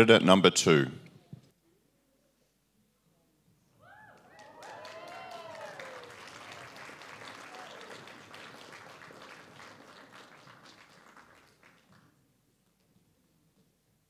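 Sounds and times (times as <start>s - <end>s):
cheering whoops: 3.8s - 9.4s
audience applauding: 4.1s - 12.2s.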